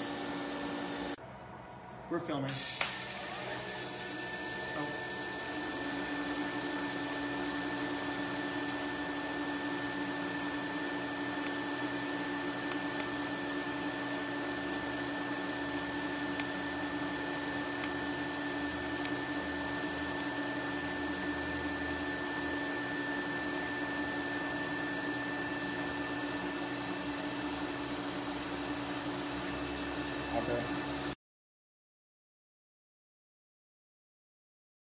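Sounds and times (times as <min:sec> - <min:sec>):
cooler pump and fan hum: 0:00.0 - 0:31.2
welding arc hissing: 0:02.6 - 0:05.0.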